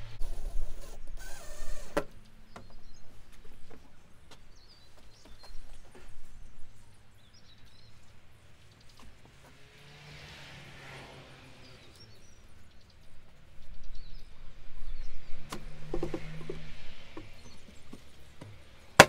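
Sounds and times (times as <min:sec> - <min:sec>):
faint birdsong: 0:00.0 - 0:19.0
knocks and clatters of objects: 0:15.4 - 0:19.0.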